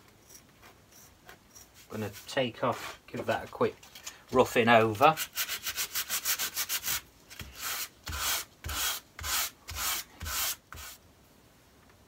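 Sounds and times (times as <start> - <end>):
sandpaper scratching leather: 5.0 - 11.0.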